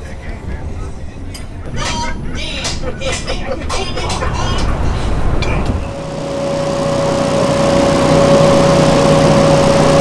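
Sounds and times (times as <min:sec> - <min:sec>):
bus engine idling: 0:00.0 - 0:07.6.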